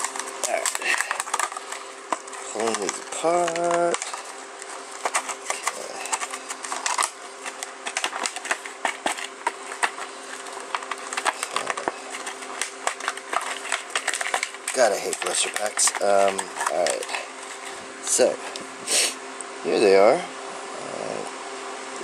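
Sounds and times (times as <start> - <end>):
plastic packaging crackling and snapping: 0.0 - 18.7.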